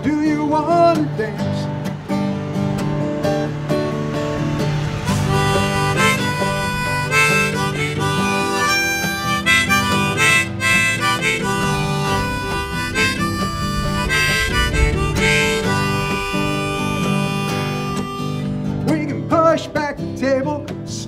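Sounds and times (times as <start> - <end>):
strummed acoustic guitar: 0.0 - 21.0
harmonica melody: 4.7 - 19.2.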